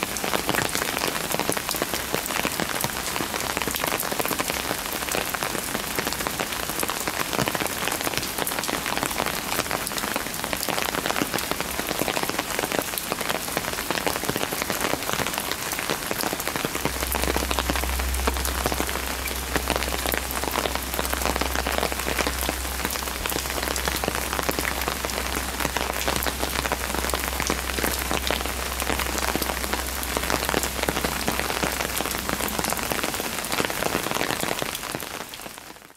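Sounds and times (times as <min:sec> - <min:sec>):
heavy rain on stone: 0:00.0 - 0:35.9
low steady hum: 0:16.2 - 0:34.9.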